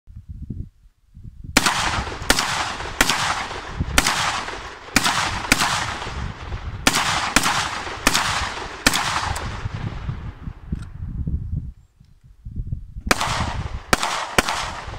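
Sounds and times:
rifle gunshots with echo: 0:01.6 - 0:10.5, 0:13.1 - 0:14.9.

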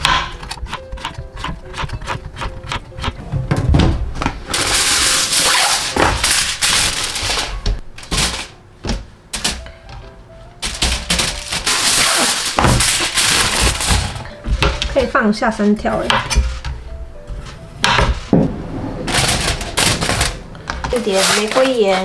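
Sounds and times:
knife chopping zucchini on a board: 0:00.0 - 0:02.8
aluminium foil crinkling: 0:04.5 - 0:08.6, 0:10.6 - 0:14.9, 0:20.9 - 0:22.0.

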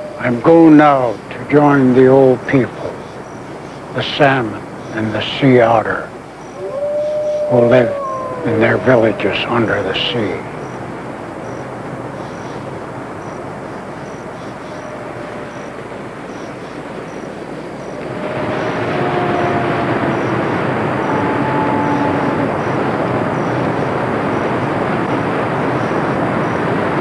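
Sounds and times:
faint long held tones: 0:00.0 - 0:01.1, 0:06.6 - 0:11.8.

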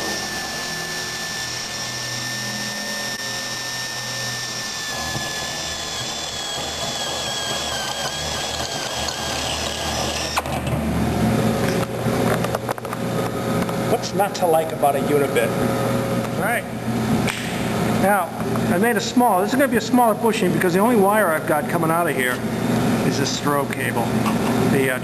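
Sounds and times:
drill whining through metal: 0:00.0 - 0:10.8.

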